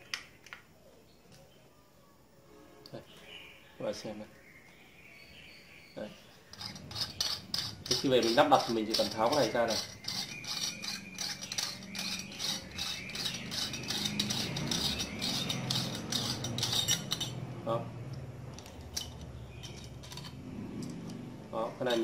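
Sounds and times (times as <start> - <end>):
metal fitting clicking and rattling: 6.5 - 17.4, 18.5 - 21.2.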